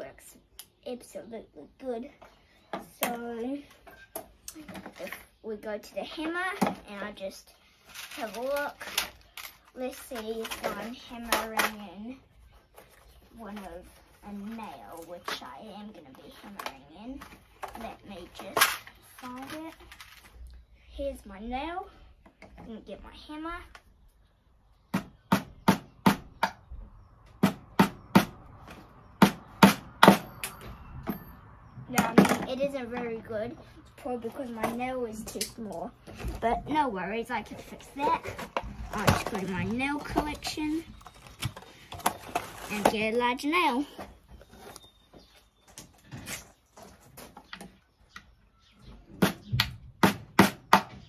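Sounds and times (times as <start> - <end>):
hammer striking nail into wood: 29.2 - 30.6, 50.0 - 51.0.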